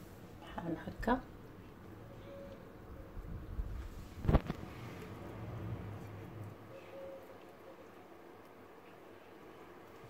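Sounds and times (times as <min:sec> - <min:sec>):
low hum: 0:01.3 - 0:10.0.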